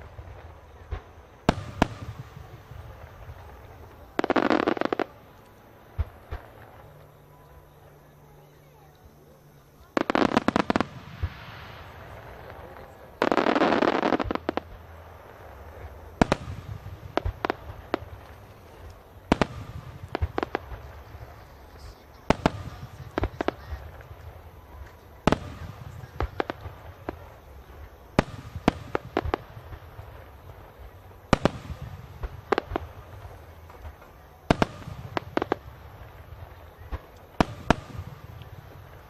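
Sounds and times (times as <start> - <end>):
low continuous rumble: 14.1 - 39.0.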